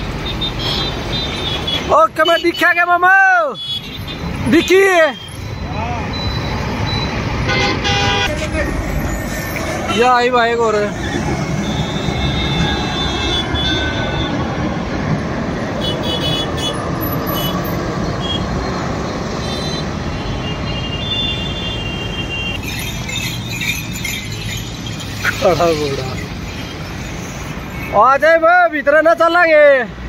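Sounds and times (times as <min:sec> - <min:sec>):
road traffic: 0:00.0 - 0:30.0
thin high tones: 0:22.5 - 0:28.2.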